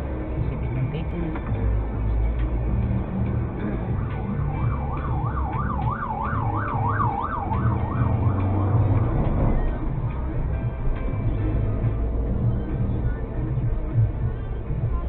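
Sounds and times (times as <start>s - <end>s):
car engine and road noise: 0.0s - 15.0s
siren yelping: 4.2s - 9.8s.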